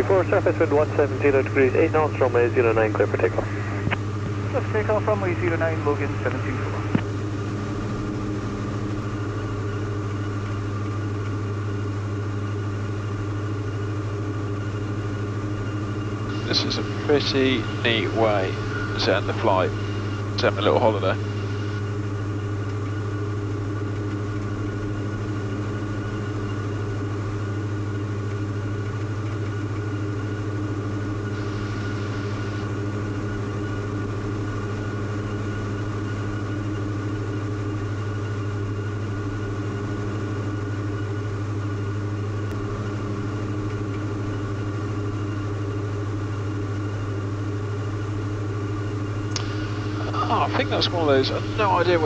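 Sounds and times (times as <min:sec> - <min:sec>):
aircraft engines droning: 0:00.0 - 0:52.0.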